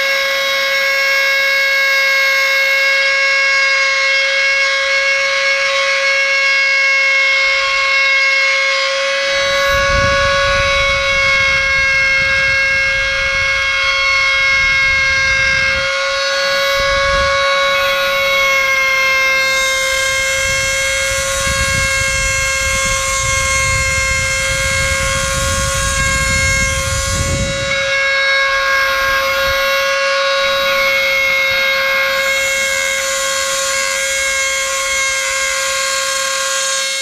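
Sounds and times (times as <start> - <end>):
rotary tool whine: 5.3 - 37.0
bit grinding pipe: 7.5 - 37.0.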